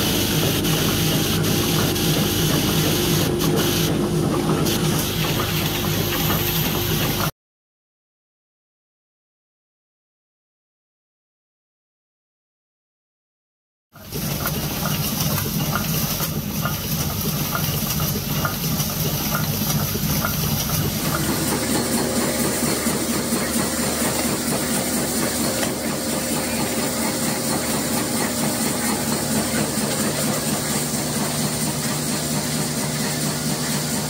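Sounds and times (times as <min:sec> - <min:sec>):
factory machinery clicking: 0:00.0 - 0:07.3, 0:14.0 - 0:34.0
machine hum: 0:00.0 - 0:07.3, 0:17.9 - 0:34.0.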